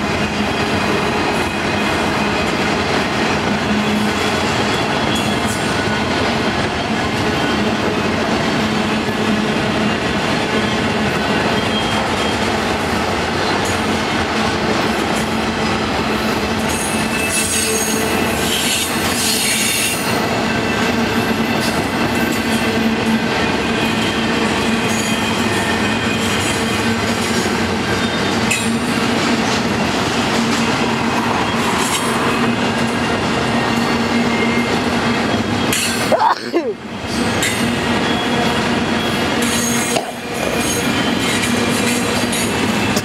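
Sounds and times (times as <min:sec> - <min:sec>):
train wheels rumbling on rail: 0:00.0 - 0:43.0
high-pitched wheel squeal: 0:16.8 - 0:20.9.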